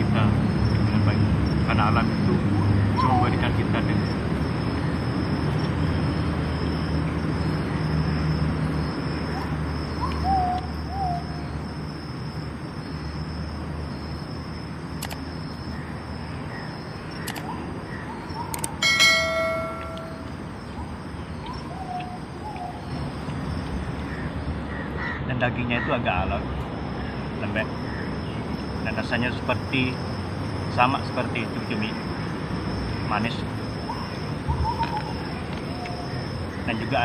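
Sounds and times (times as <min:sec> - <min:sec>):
bird calls: 0:01.7 - 0:04.1, 0:07.0 - 0:11.6, 0:15.3 - 0:26.3, 0:30.7 - 0:37.0
bell ding sound effect: 0:18.8 - 0:20.4
high-pitched hum: 0:18.8 - 0:20.7.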